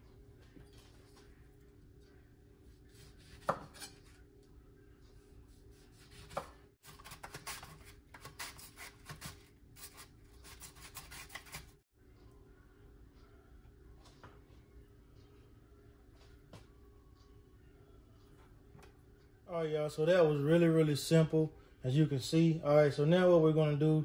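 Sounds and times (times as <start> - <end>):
knife slicing on cutting board: 2.9 - 4.2.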